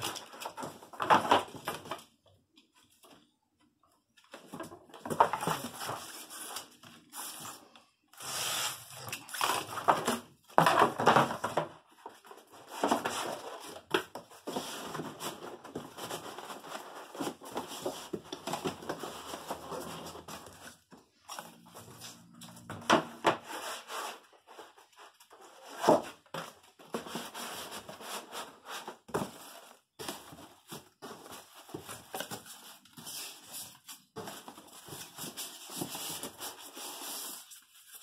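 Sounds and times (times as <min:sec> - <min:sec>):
cardboard scraping and rustling: 0:04.4 - 0:38.0.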